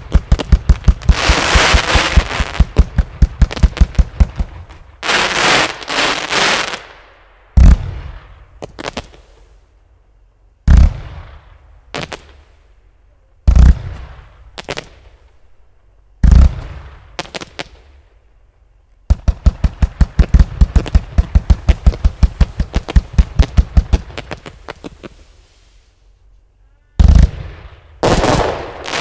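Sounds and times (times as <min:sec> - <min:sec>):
firework booms: 0:00.0 - 0:09.2, 0:10.6 - 0:12.4, 0:13.4 - 0:15.2, 0:16.2 - 0:17.9, 0:19.1 - 0:25.1, 0:27.0 - 0:29.0
firework cracks: 0:00.0 - 0:09.4, 0:10.7 - 0:12.4, 0:13.5 - 0:15.2, 0:16.2 - 0:17.9, 0:19.1 - 0:25.2, 0:27.0 - 0:29.0.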